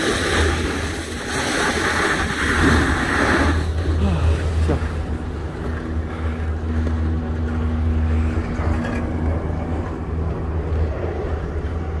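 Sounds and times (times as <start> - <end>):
snowboard sliding over icy snow: 0.0 - 7.5
wind buffeting microphone: 0.0 - 12.0
humming tone: 3.6 - 12.0.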